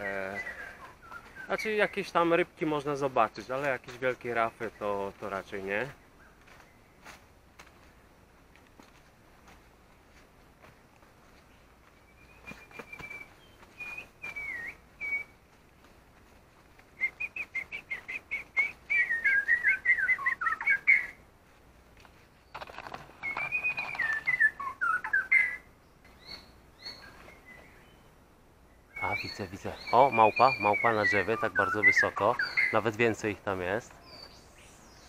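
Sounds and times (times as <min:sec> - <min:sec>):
songbird singing whistled phrases: 0:00.2 - 0:02.1, 0:12.1 - 0:15.4, 0:17.0 - 0:21.2, 0:23.2 - 0:28.0, 0:28.9 - 0:33.0, 0:34.0 - 0:35.0.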